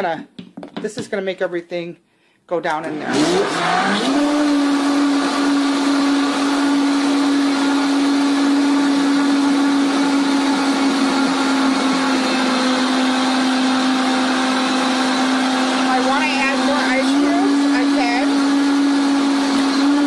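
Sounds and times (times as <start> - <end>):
blender motor whining: 2.8 - 20.0.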